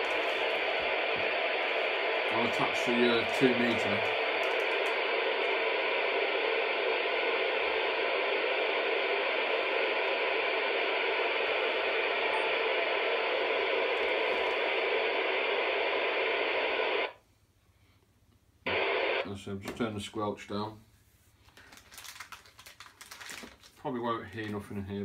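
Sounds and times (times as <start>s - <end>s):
radio receiver static hiss: 0.0s - 17.2s, 18.6s - 19.4s.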